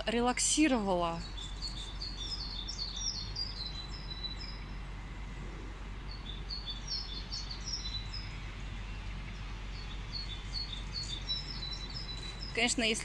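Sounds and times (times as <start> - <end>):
road traffic hum: 0.0 - 13.0
songbirds chirping: 0.0 - 13.0.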